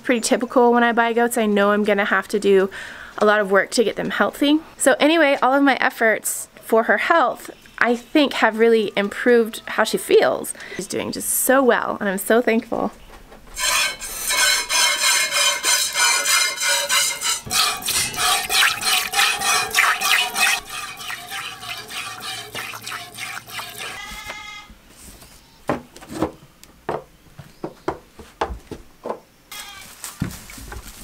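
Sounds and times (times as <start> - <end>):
milk squirting into metal pail: 13.6 - 24.2.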